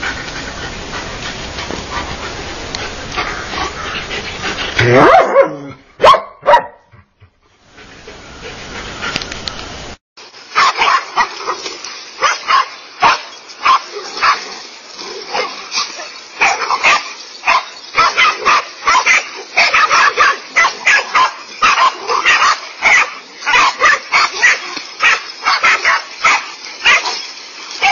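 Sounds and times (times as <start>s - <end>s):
dogs barking rapidly: 3.0s - 7.0s, 10.5s - 27.9s
sharp loud dog barks: 4.9s - 6.9s, 16.4s - 27.0s.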